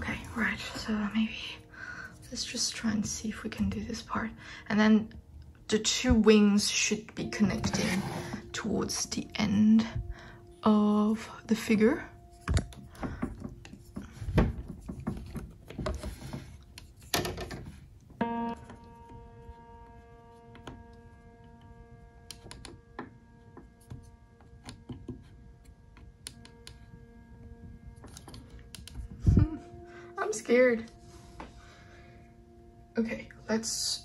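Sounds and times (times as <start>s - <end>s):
soft background music: 0.0s - 34.0s
plastic parts knocking and clicking: 12.5s - 17.8s.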